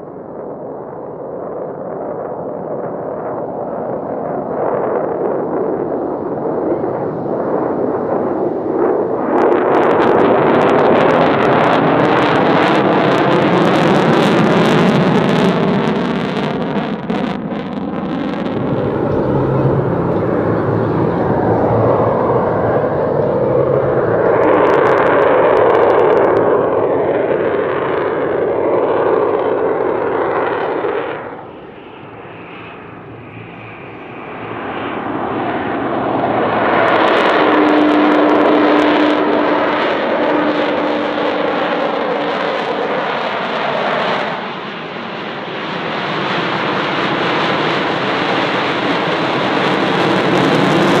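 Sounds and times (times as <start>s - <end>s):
jet roaring past: 0.0s - 51.0s.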